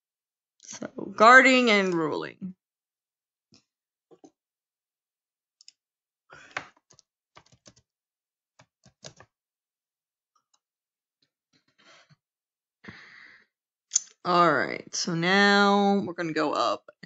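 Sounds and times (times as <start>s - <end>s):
keyboard and mouse clicks: 6.5s - 7.9s, 8.6s - 9.3s.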